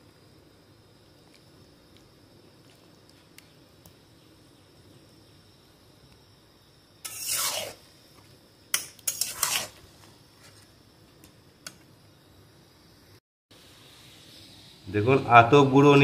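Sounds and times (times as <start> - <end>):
metal spatula scraping a pot: 7.0 - 7.8, 9.0 - 9.8.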